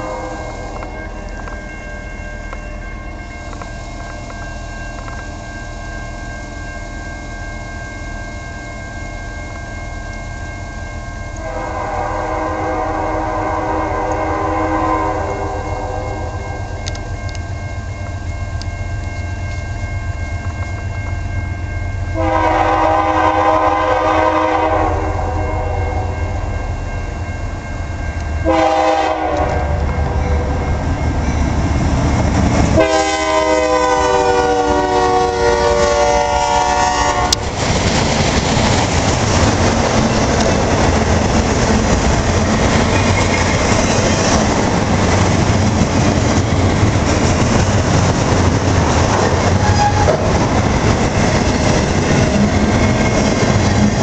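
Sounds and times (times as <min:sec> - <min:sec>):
train horn blasts: 0:00.0 - 0:01.1, 0:11.4 - 0:17.4, 0:22.1 - 0:26.3, 0:28.4 - 0:30.7, 0:32.7 - 0:37.4, 0:49.6 - 0:50.4
train wheels on rail: 0:00.0 - 0:25.4, 0:26.0 - 0:54.0.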